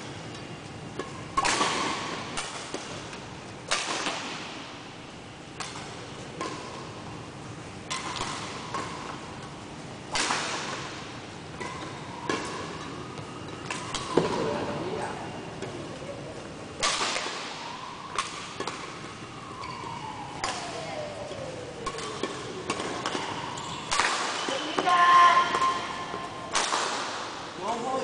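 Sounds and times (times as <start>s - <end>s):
rackets striking shuttlecock: 0.9s - 4.6s, 5.5s - 6.9s, 7.8s - 9.5s, 10.1s - 14.6s, 16.8s - 19.8s, 20.4s - 27.6s.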